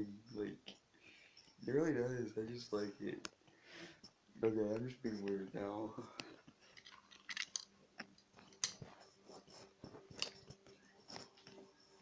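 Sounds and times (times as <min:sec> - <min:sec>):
clicks crinkles and rustles: 0:04.7 - 0:09.1, 0:09.8 - 0:11.6.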